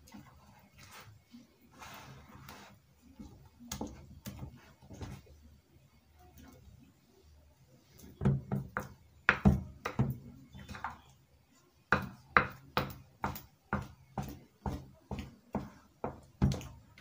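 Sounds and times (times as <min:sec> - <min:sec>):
hand beating batter in glass bowl: 0:11.9 - 0:17.0.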